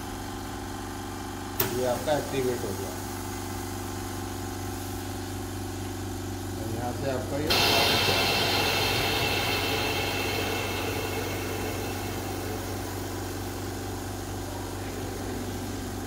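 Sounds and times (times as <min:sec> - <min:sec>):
air hissing in chamber: 0:07.5 - 0:16.0
machine low hum: 0:07.5 - 0:16.0.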